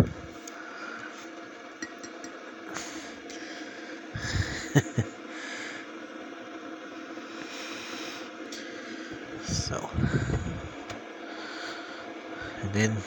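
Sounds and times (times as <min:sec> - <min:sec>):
faint steady hum: 0:00.0 - 0:13.0
glass mug clinking: 0:01.8 - 0:02.4.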